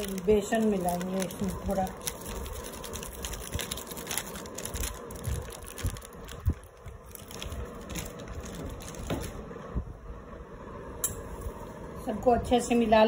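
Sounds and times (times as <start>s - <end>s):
plastic packet crinkling: 0.0s - 9.4s.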